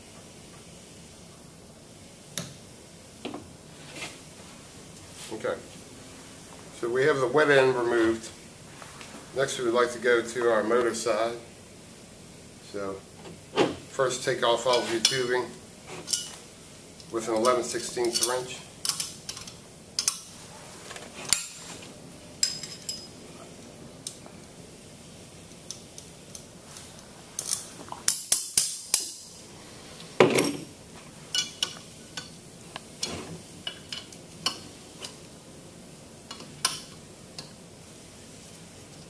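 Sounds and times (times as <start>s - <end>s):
wrench clinking on metal fittings: 17.4s - 20.2s.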